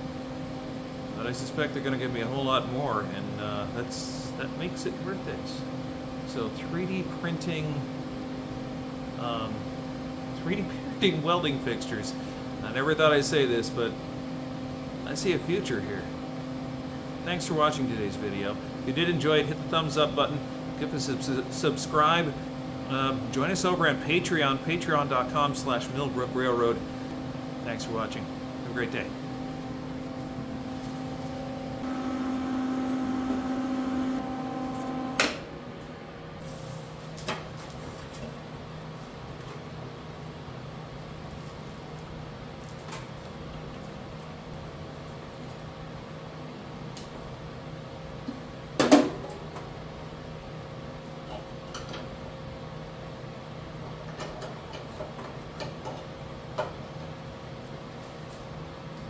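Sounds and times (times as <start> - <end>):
welder humming: 0.0 - 36.8.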